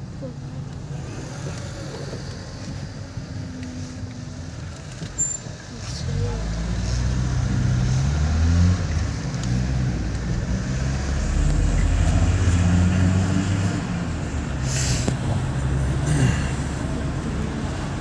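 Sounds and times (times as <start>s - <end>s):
car engine and road noise: 0.0s - 18.0s
short hiss: 14.6s - 15.2s.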